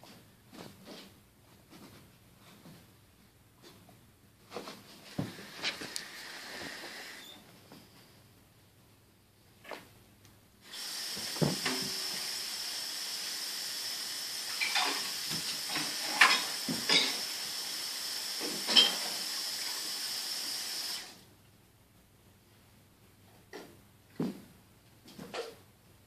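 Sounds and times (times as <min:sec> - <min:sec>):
steady hiss: 0:04.5 - 0:08.4, 0:10.6 - 0:21.3.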